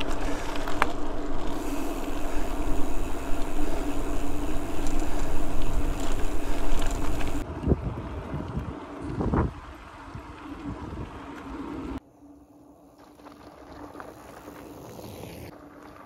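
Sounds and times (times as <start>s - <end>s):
steady hum: 0.0s - 7.4s
wind on microphone: 0.0s - 11.2s
bike tyres rolling: 0.0s - 12.0s, 12.6s - 16.0s.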